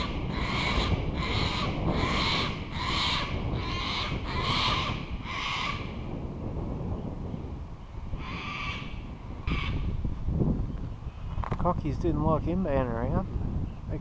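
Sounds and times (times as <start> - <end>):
cockatoos screeching: 0.0 - 5.9.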